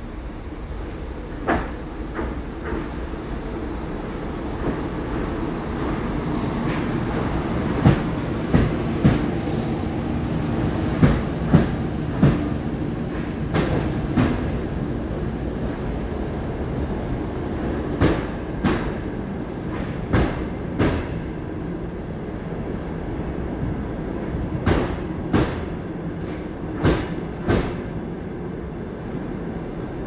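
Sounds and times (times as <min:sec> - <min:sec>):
electric train rolling past: 0:00.0 - 0:30.0.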